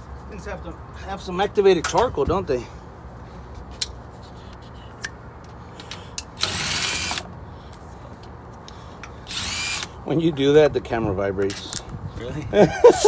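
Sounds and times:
cordless drill spinning out bolt: 6.4s - 7.3s, 9.3s - 9.9s.

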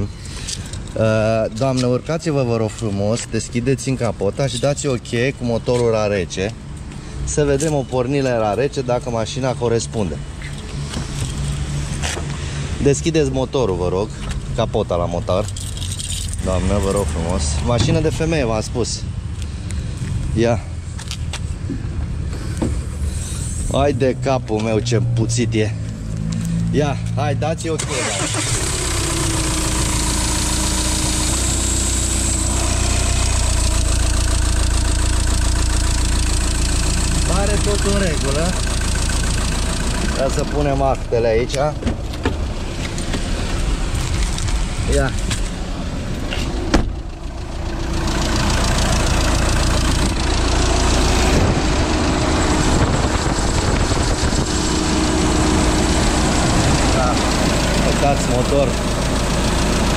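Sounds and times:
diesel engine idling: 0.0s - 59.9s.

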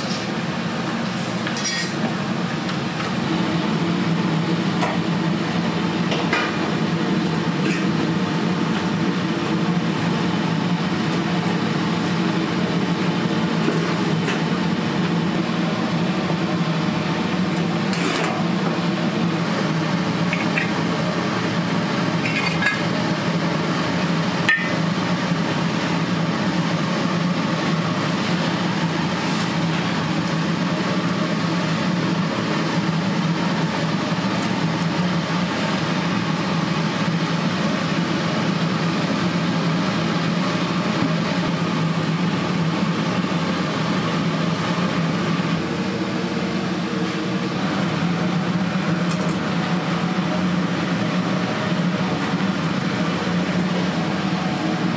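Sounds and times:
low mechanical hum: 0.0s - 54.9s
dishes clinking: 22.3s - 22.9s.

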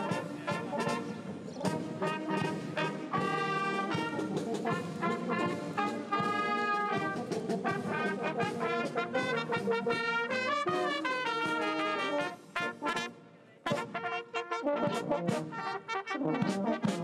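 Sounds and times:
drumbeats: 0.0s - 13.0s
brass band playing a march: 0.0s - 17.0s.

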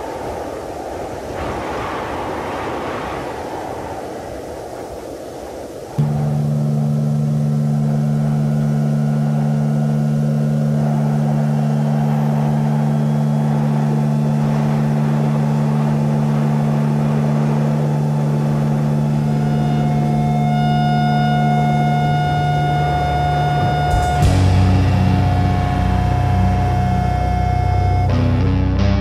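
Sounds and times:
noisy rumble: 5.7s - 29.0s
low droning tone: 6.0s - 29.0s.

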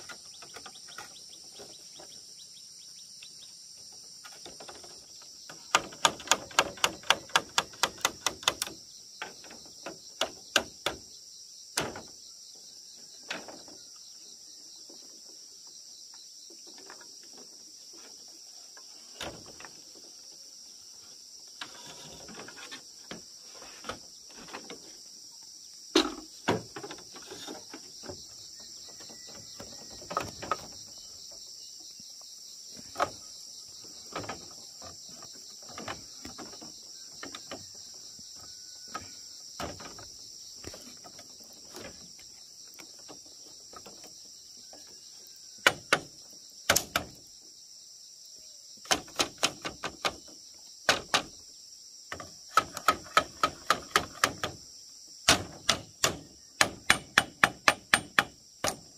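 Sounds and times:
hand tool knocks and strikes: 55.3s - 58.9s.

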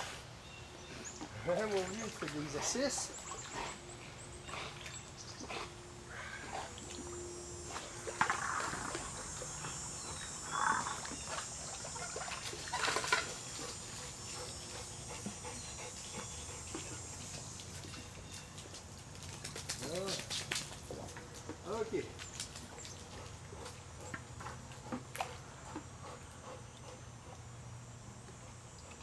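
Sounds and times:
water splashing: 1.4s - 3.9s, 6.2s - 14.2s.

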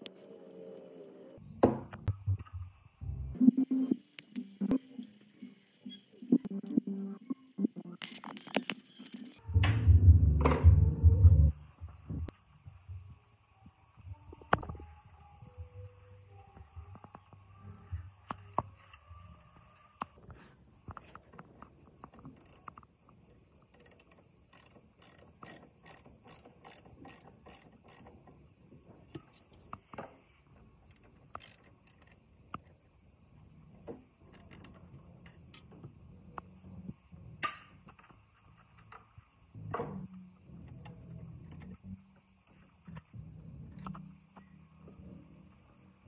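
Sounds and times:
ratchet wrench clicking: 23.7s - 28.2s, 30.9s - 32.2s.

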